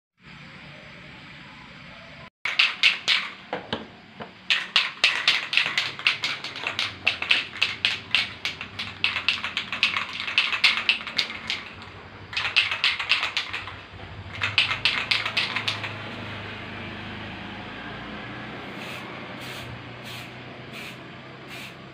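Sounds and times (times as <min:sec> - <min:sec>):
spray can rattling: 0:02.5 - 0:03.6, 0:04.4 - 0:16.0, 0:18.8 - 0:21.8.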